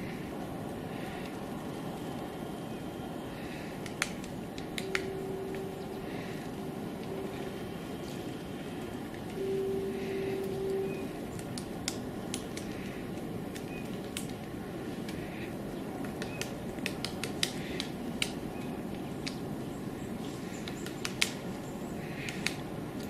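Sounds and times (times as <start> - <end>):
low background rumble: 0.0 - 23.0
woodpecker tapping on bark: 16.0 - 18.4, 20.4 - 21.4, 22.0 - 22.6.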